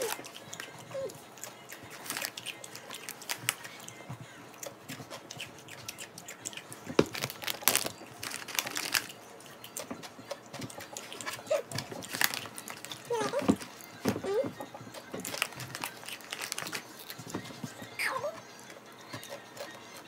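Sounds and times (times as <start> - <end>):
crunching crisp snack: 1.4 - 3.8, 5.0 - 9.9, 10.8 - 13.7, 15.2 - 17.3.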